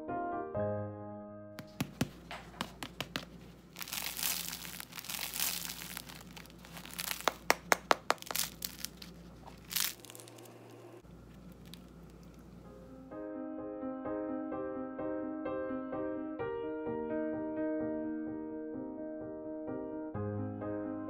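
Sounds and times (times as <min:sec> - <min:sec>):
sharp cracks of bread crust: 0:01.6 - 0:10.6
bread crust crackling and crunching: 0:01.6 - 0:12.5.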